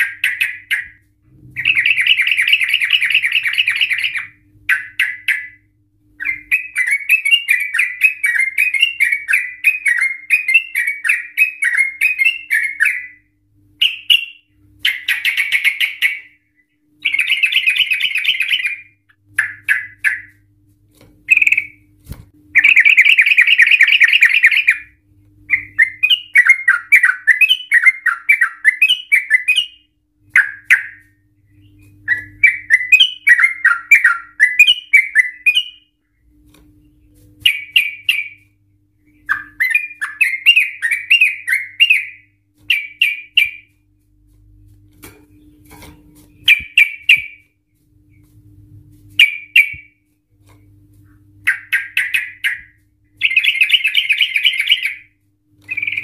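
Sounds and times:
bird singing chattering trills: 0.0 - 1.0, 1.6 - 13.2, 13.8 - 16.4, 17.0 - 20.4, 21.3 - 21.8, 22.6 - 24.9, 25.5 - 35.9, 39.1 - 43.7, 51.4 - 55.1, 55.7 - 56.0.

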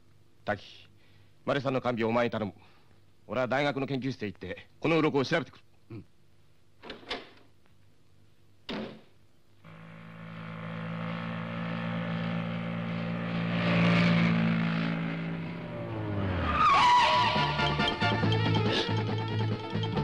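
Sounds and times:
motorcycle engine running: 9.7 - 16.1
brake squeal: 9.7 - 18.4.

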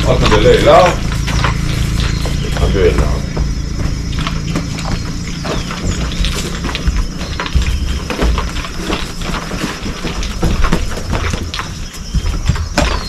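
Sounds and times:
low rumble: 0.0 - 9.3
hooves thudding and scuffing: 0.0 - 13.0.

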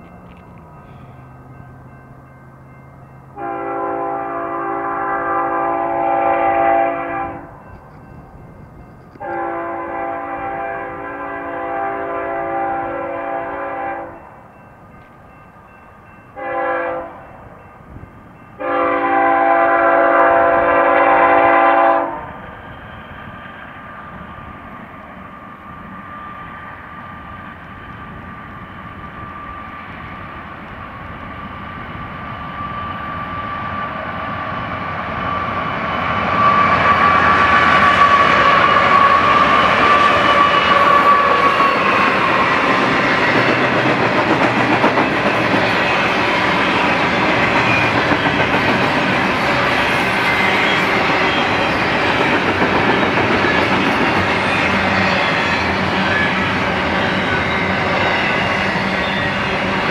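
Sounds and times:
train rumbling: 0.0 - 59.9
locomotive air horn blasts: 3.4 - 7.5, 9.2 - 14.2, 16.4 - 17.2, 18.6 - 22.3, 36.4 - 41.8.

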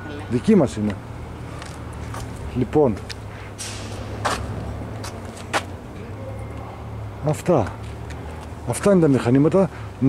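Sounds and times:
short scuffs: 3.1 - 5.7.

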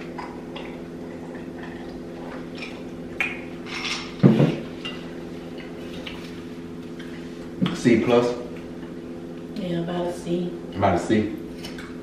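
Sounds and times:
eating and drinking sounds: 0.0 - 9.6, 10.7 - 12.0
steady low hum: 0.0 - 12.0.

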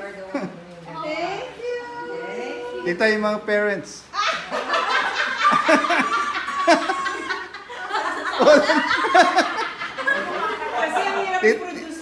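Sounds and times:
people laughing: 4.2 - 11.7.

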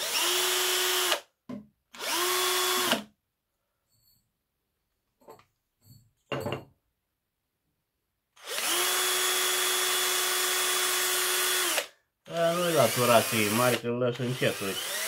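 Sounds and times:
cordless drill spinning: 0.0 - 1.3, 1.9 - 3.1, 8.4 - 15.0.

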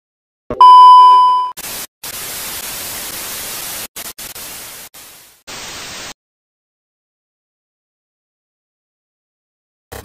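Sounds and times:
loud steady beep: 0.6 - 1.6
static hiss: 1.6 - 6.2.

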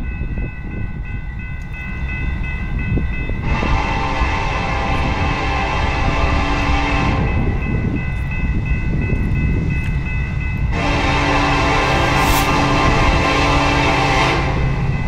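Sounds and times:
crossing warning bells ringing: 0.0 - 15.0
low train rumble: 0.0 - 15.0
locomotive horn blasts: 3.4 - 7.4, 10.7 - 14.9.

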